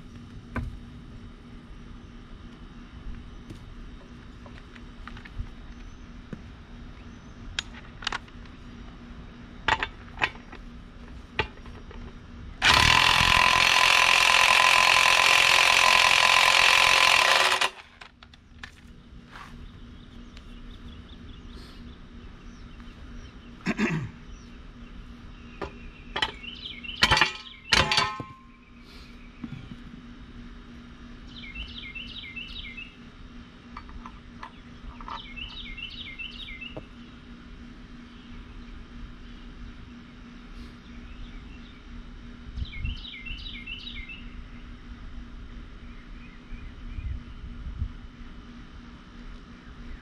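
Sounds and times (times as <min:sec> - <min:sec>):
steady low hum: 0:00.0 - 0:50.0
songbird chirping: 0:19.0 - 0:23.6, 0:24.2 - 0:27.8, 0:31.2 - 0:37.3, 0:42.6 - 0:44.8
sharp metal clanks: 0:27.0 - 0:28.5.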